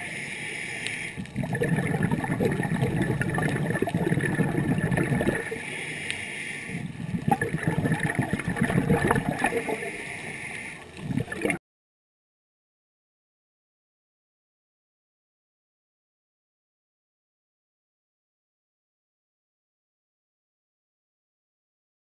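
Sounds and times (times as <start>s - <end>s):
hissing inhalations: 0.0s - 1.4s, 5.4s - 7.1s, 9.4s - 11.1s
exhaled bubbles underwater: 1.2s - 5.7s, 6.7s - 10.0s, 11.0s - 11.6s.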